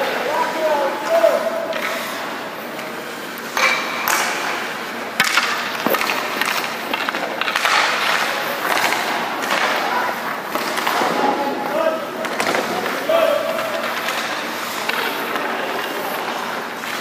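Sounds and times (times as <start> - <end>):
skate blades scraping ice: 1.2 - 3.6, 5.2 - 11.5, 12.3 - 17.0.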